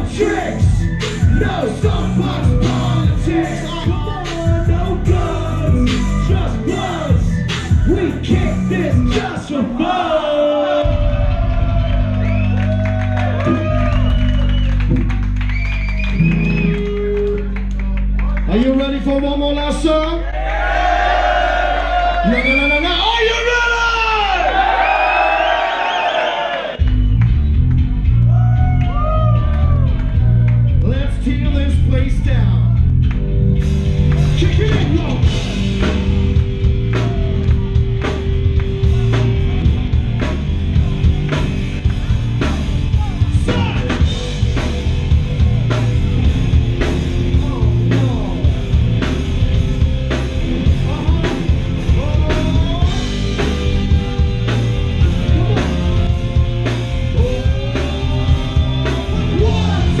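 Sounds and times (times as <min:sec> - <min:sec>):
person singing: 0:00.0 - 0:11.6, 0:55.0 - 1:00.0
rock band playing live: 0:00.0 - 0:18.2, 0:26.8 - 1:00.0.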